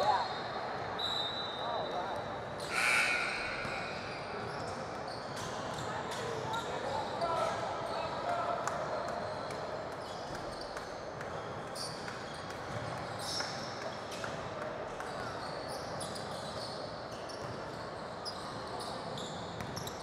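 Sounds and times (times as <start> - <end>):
sneakers squeaking: 0.0 - 8.1, 15.4 - 20.0
players' voices echoing: 1.6 - 5.1.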